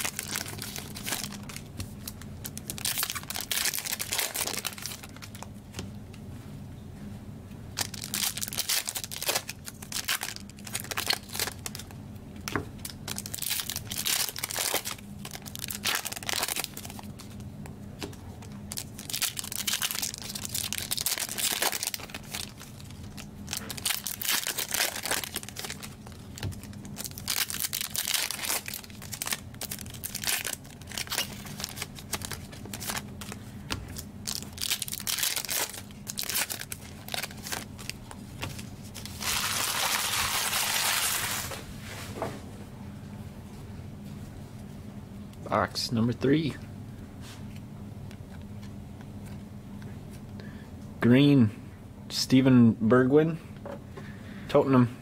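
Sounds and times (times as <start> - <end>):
plastic wrappers tearing and crinkling: 0.0 - 5.5, 7.8 - 11.9, 12.8 - 17.4, 18.4 - 41.7.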